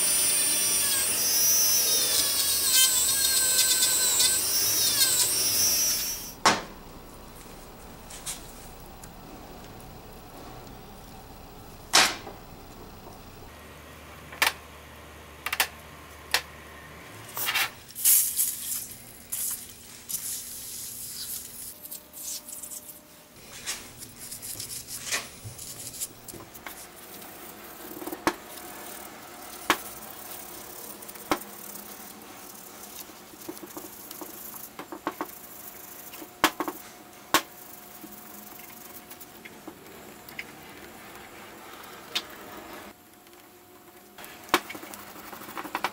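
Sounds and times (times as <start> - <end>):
brush scrubbing: 23.4 - 34.7.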